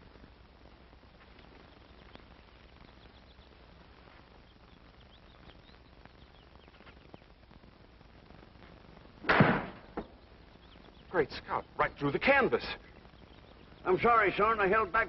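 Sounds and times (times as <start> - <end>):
faint bird chirps: 1.2 - 7.4, 9.8 - 14.8
golf ball whacking canvas target: 9.2 - 9.8.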